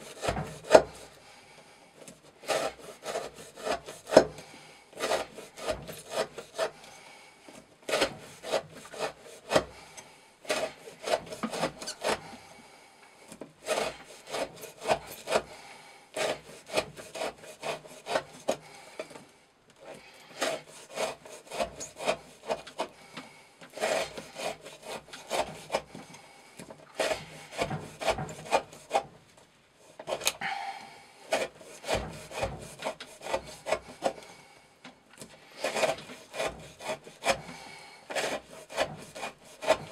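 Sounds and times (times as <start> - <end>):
knife slicing through rope: 2.4 - 6.9, 10.5 - 12.5, 13.6 - 15.6, 16.2 - 18.8, 23.7 - 26.0, 26.9 - 29.1, 31.3 - 34.2, 35.5 - 39.9.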